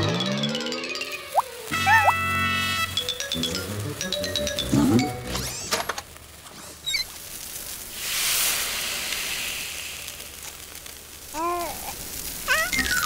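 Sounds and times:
hissing water spray: 6.7s - 13.0s
voice-like sound: 11.4s - 13.0s.

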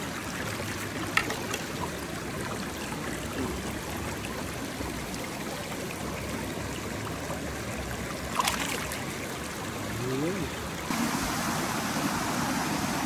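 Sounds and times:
stream flowing over rocks: 0.0s - 13.0s
fish splashing into water: 8.3s - 9.1s.

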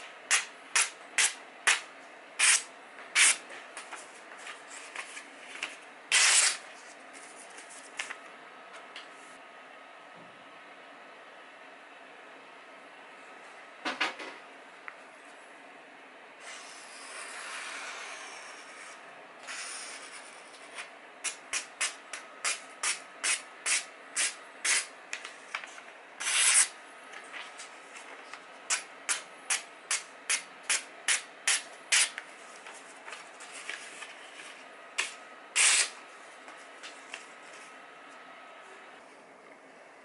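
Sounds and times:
knife slicing paper: 6.1s - 6.6s, 26.2s - 26.7s, 35.6s - 36.0s
paper rustling: 32.5s - 34.6s.

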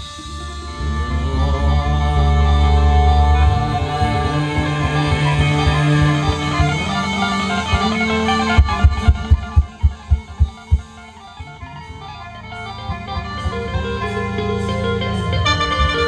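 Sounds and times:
live band music: 0.0s - 16.0s
heavy drum beats: 7.7s - 11.1s.

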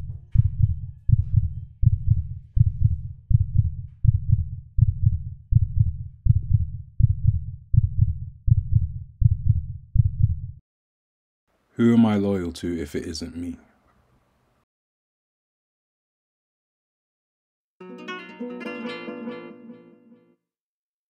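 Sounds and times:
heartbeat: 0.0s - 10.6s.

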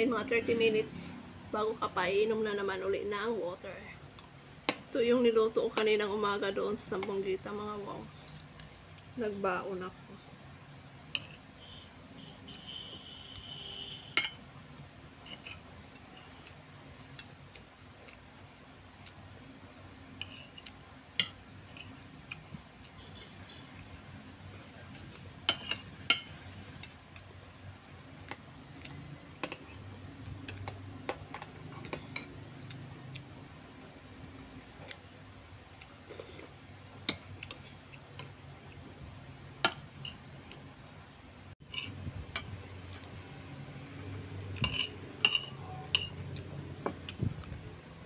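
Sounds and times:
cutlery clinking on plate: 14.2s - 14.4s, 25.0s - 27.0s, 44.6s - 46.3s.

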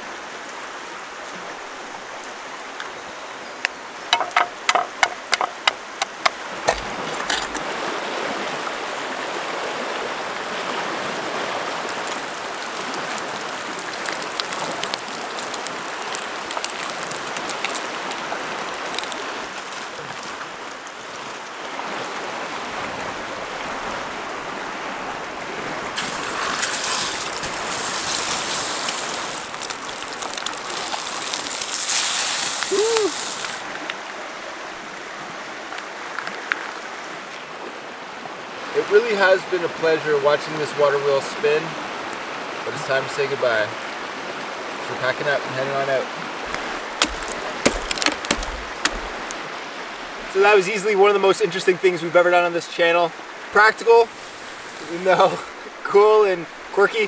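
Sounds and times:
eggs frying in a pan: 11.9s - 19.2s, 26.0s - 33.6s
bacon sizzling in a frying pan: 26.0s - 33.6s.

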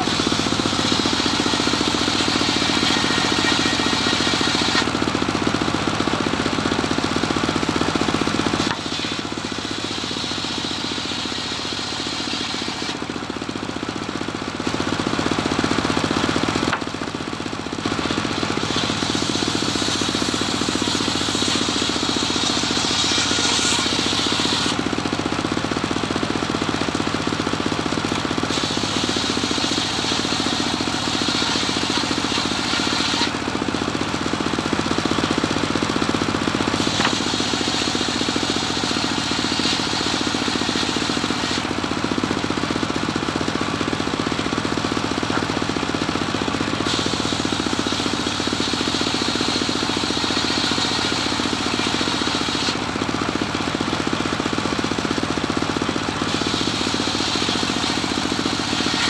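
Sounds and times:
circular saw blade cutting wood: 0.0s - 5.6s, 7.8s - 13.1s, 18.0s - 24.9s, 28.4s - 34.0s, 36.3s - 41.8s, 46.7s - 52.8s, 56.2s - 59.0s
engine running steadily: 0.0s - 59.0s.

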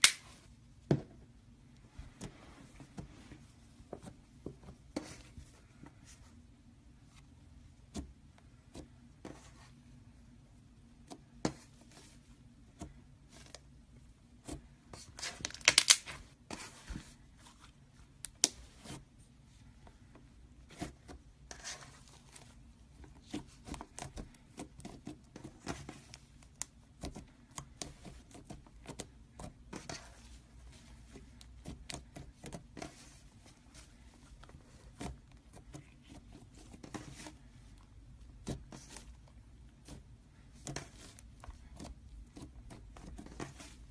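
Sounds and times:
slime kneaded by hand: 20.0s - 43.9s.

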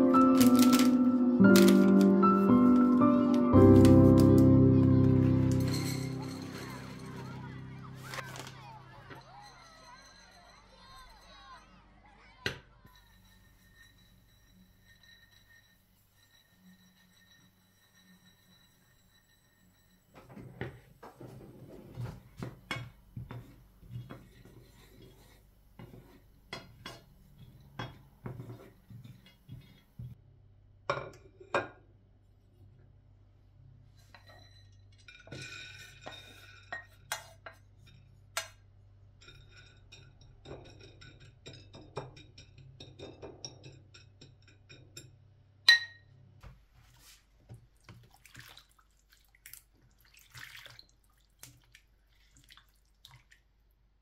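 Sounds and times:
spatula scraping a pan: 12.9s - 30.2s, 34.0s - 38.5s.

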